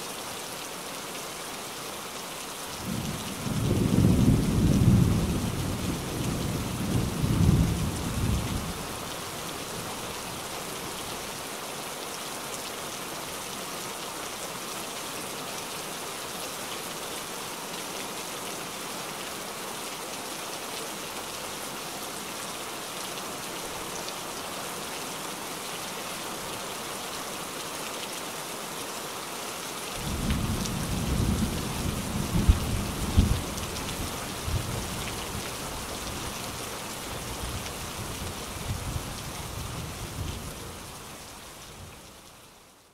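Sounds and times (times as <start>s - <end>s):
steady rain hissing: 0.0s - 42.9s
low rumbles of thunder: 2.8s - 8.7s, 30.0s - 33.4s.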